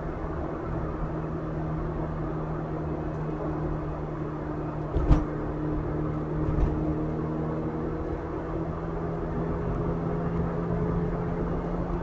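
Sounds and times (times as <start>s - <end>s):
car engine hum and road noise: 0.0s - 12.0s
sharp thump: 4.9s - 5.3s.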